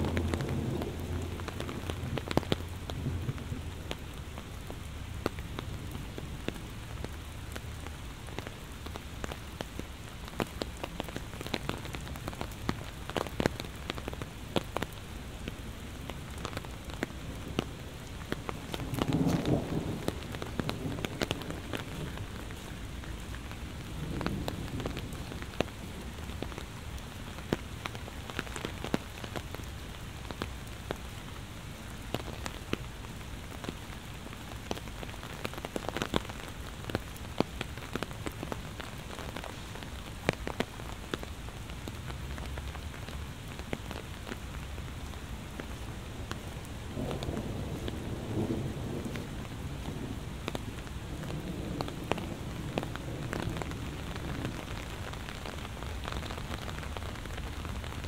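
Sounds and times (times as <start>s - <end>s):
thunder rumble: 0.0s - 6.2s, 17.3s - 26.4s, 46.9s - 55.3s
heavy rain falling: 0.0s - 58.0s
raindrops striking close by: 0.0s - 58.0s.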